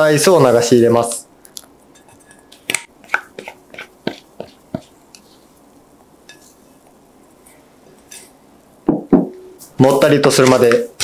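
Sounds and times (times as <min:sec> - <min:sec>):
spatula clinking glass bowl: 0:01.9 - 0:02.8, 0:06.3 - 0:06.6.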